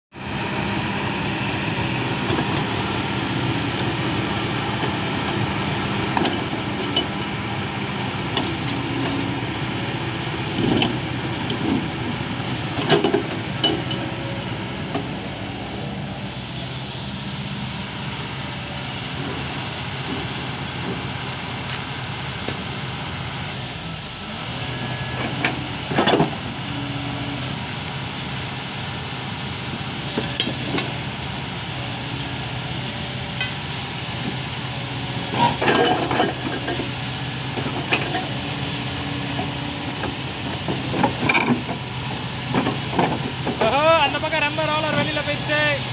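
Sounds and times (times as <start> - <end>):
excavator diesel engine: 0.2 - 45.9
metallic clanks and squeaks: 35.3 - 36.8.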